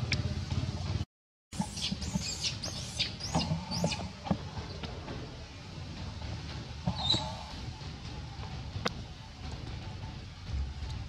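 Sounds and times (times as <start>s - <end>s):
low steady rumble: 0.0s - 1.0s, 1.6s - 11.0s
baby monkey high squeaks: 1.6s - 4.1s, 7.0s - 7.3s.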